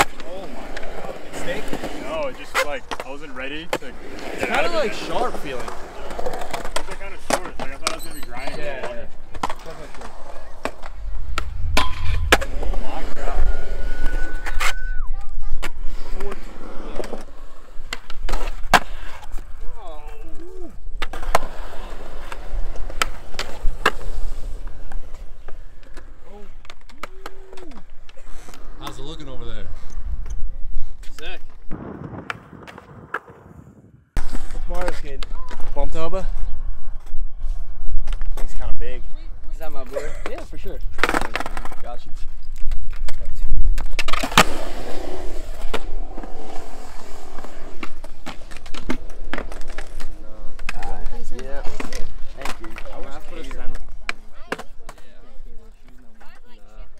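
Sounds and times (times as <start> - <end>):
skateboard clacks: 0.0 - 8.1, 40.2 - 55.2
skateboard wheels rolling on concrete: 0.0 - 56.9.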